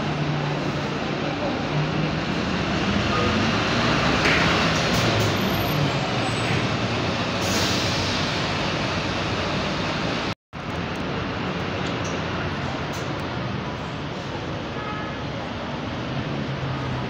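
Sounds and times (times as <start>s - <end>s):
bus engine pulling away: 0.0s - 17.0s
bus idling: 0.0s - 17.0s
air brake hiss: 7.4s - 8.3s.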